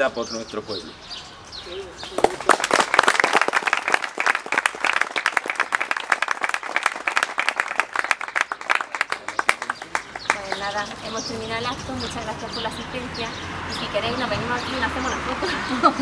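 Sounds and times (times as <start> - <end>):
people applauding: 2.1 - 11.0.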